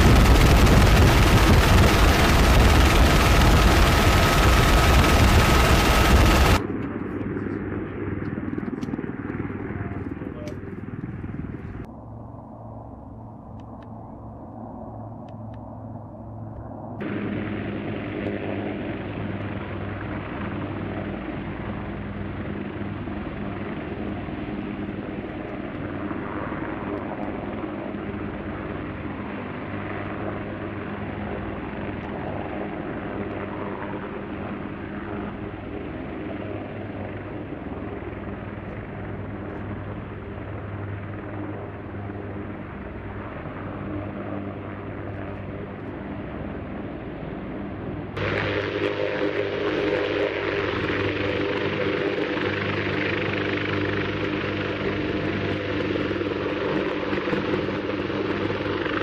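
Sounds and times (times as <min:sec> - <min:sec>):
helicopter drone: 0:00.0 - 0:59.0.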